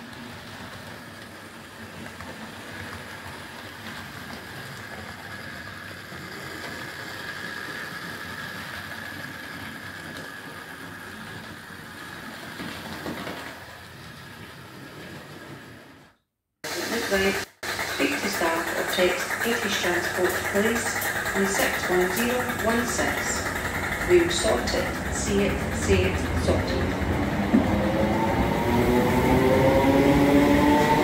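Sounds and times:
wheels rolling on track: 0:00.0 - 0:31.0
model train motor whirring: 0:03.9 - 0:12.6, 0:16.7 - 0:26.8.

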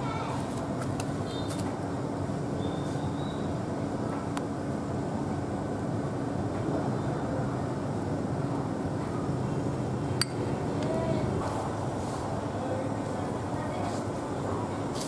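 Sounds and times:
metal spoon clinking ceramic bowl: 0:10.2 - 0:10.5.

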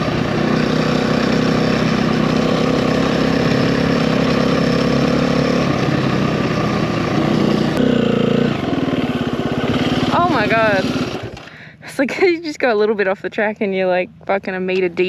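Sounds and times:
dirt bike engine running: 0:00.0 - 0:11.8.

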